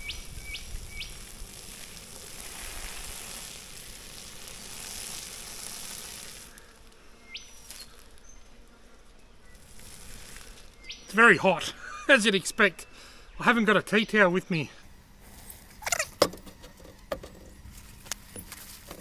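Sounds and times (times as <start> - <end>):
water pouring onto grass: 0.0 - 6.8.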